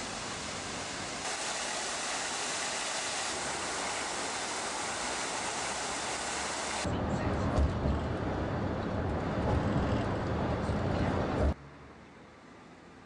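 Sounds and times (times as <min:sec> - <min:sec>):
fountain water splashing: 0:00.0 - 0:06.9.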